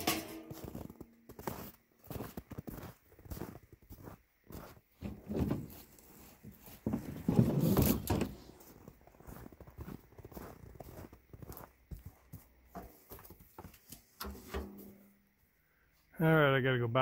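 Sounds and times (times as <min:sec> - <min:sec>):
metal stove scraping clatter: 0:00.0 - 0:00.9, 0:14.2 - 0:15.1
footsteps in snow: 0:00.5 - 0:07.3, 0:08.3 - 0:14.1.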